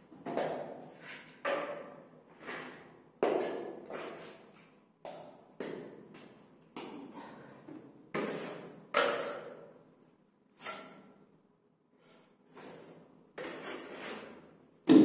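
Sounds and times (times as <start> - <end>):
spatula scraped against spatula: 10.6 - 11.2, 13.4 - 14.5
spatula scraping wet plaster: 13.4 - 14.5.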